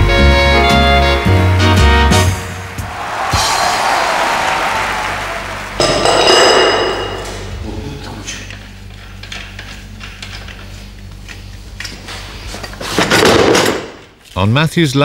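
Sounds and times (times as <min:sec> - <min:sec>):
loud metallic clang: 0:02.9 - 0:07.5.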